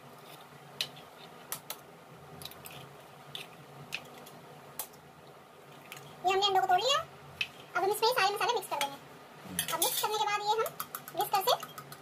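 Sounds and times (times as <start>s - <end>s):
eggshells tapped with a spoon: 10.6s - 12.0s.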